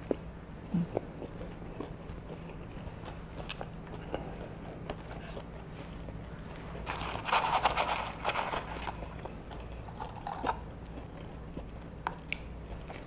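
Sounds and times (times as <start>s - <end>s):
paper carton rustling: 6.8s - 9.0s
chewing clicks: 10.4s - 13.0s.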